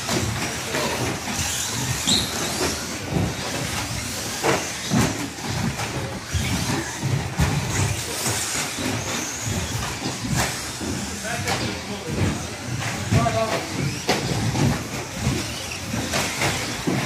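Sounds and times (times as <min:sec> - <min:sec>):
high-pitched motor whines: 0:00.0 - 0:17.0
rc trucks tyres hissing: 0:00.6 - 0:05.4.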